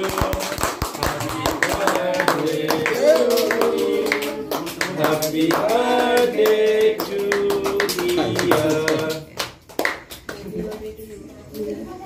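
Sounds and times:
people singing: 0.0 - 9.5
people clapping in rhythm: 0.0 - 10.9.

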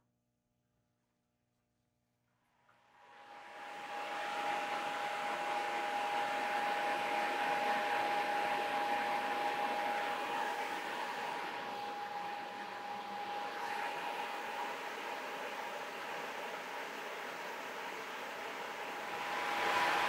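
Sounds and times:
high machine whine: 3.3 - 20.0
resurfacing machine whirring: 18.5 - 20.0.

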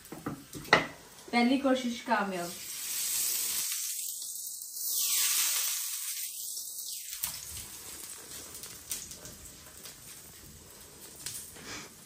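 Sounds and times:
pancake sizzling in a pan: 0.0 - 12.0.

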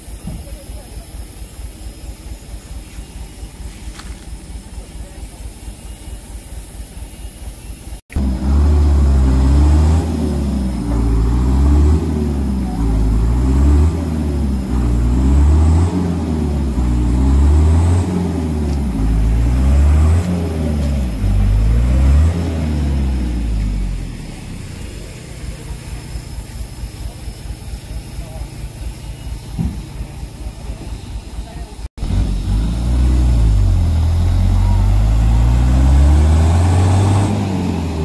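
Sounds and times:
truck diesel engine revving: 8.1 - 38.0.

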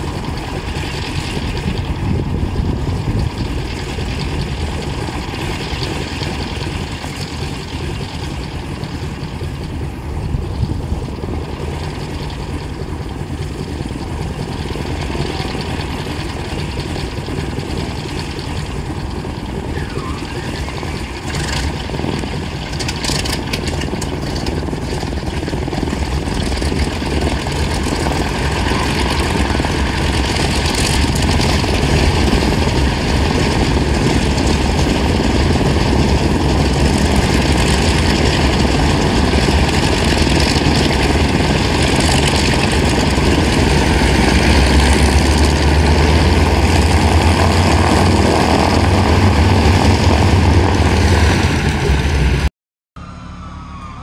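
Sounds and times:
propeller plane engines rumbling: 0.0 - 54.0.

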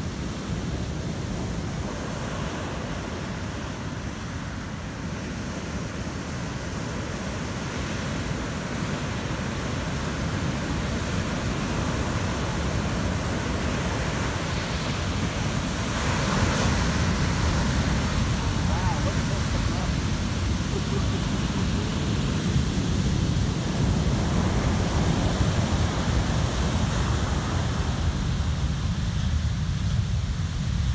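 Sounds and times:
ocean waves breaking: 0.0 - 30.7.

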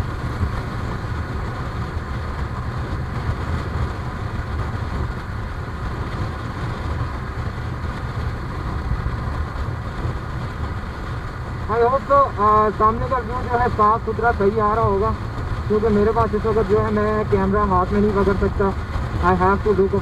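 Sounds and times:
road and wind noise: 0.0 - 20.0.

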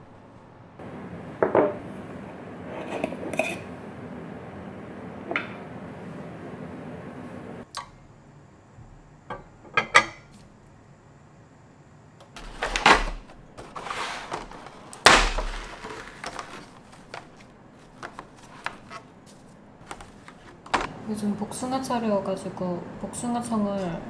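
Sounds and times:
plastic container crackling: 12.4 - 19.0
plastic rustling: 12.4 - 20.9.

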